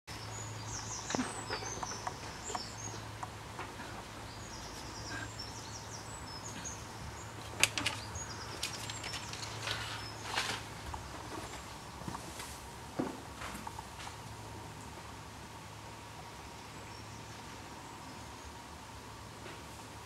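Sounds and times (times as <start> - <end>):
small birds chirping: 0.1 - 12.6, 15.7 - 19.2.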